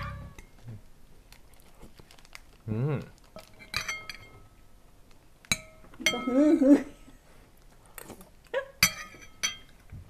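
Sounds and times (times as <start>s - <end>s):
utensils clinking against ceramic bowl: 3.5s - 4.4s, 8.8s - 9.8s.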